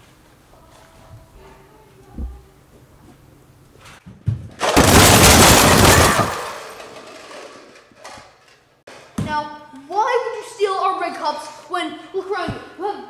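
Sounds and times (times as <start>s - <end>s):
plastic cups clattering on wooden floor: 4.4s - 9.0s.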